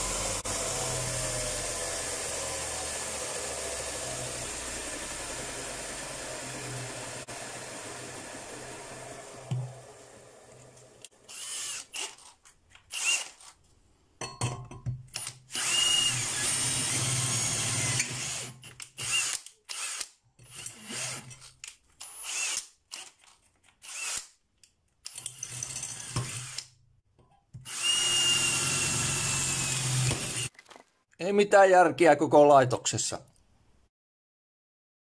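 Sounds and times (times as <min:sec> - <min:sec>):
cordless drill boring into metal: 0:11.0 - 0:13.5, 0:15.2 - 0:24.4, 0:25.1 - 0:26.7, 0:27.6 - 0:30.5.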